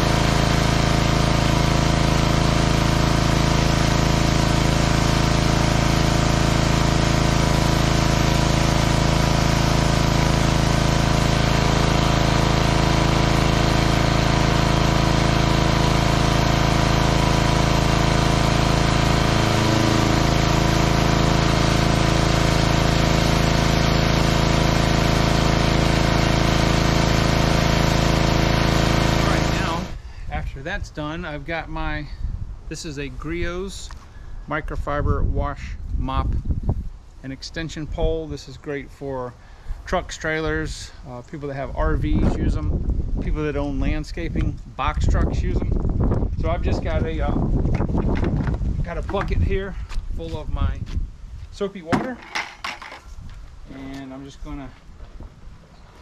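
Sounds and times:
small gasoline engine running: 0:00.0 - 0:30.1.

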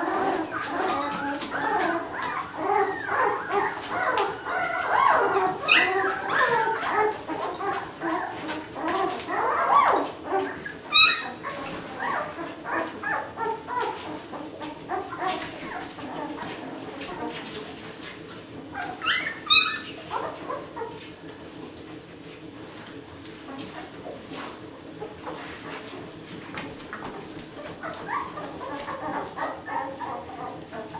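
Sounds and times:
puppy squealing: 0:00.0 - 0:16.4, 0:18.8 - 0:21.0, 0:27.6 - 0:30.9
puppies whimpering and crying: 0:00.0 - 0:21.2, 0:23.4 - 0:30.9.

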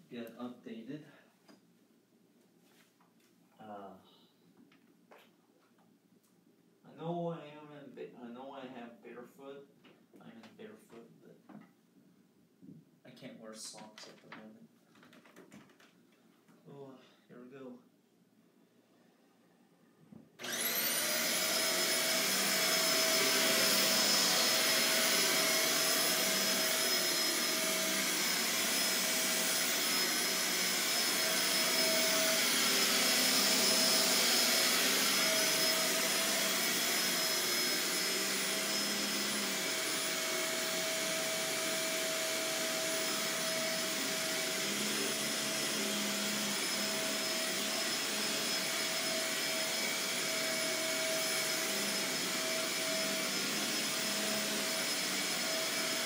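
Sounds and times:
vacuum cleaner motor whining: 0:20.4 - 0:56.0.

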